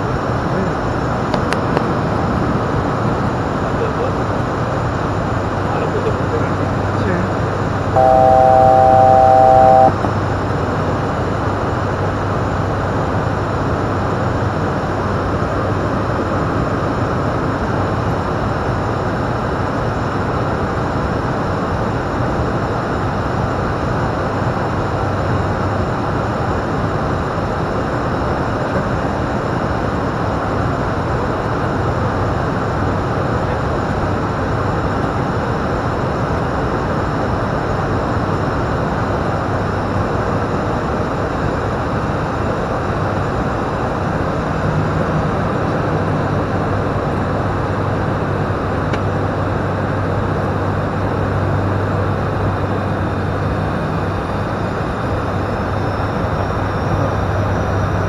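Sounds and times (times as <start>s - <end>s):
turboprop engine drone: 0.0s - 58.0s
loud electronic tone: 8.0s - 10.1s.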